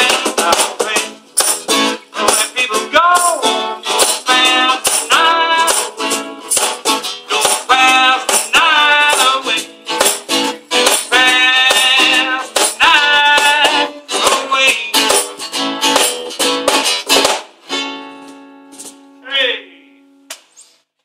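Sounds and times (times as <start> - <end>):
man singing: 0.0 - 1.5, 2.1 - 3.6, 4.2 - 6.1, 7.3 - 10.0, 11.0 - 15.3
acoustic guitar strumming: 0.0 - 20.3.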